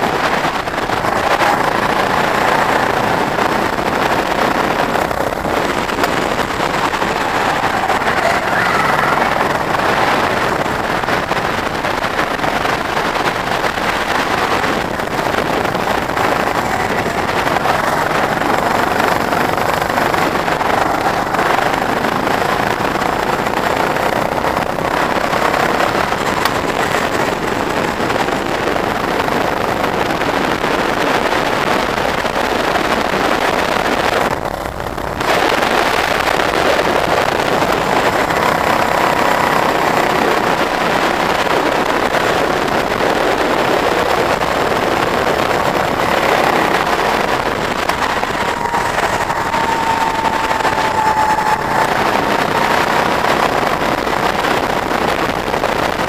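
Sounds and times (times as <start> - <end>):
go-kart engine revving: 0.0 - 56.0
wind and tyres rushing: 0.0 - 56.0.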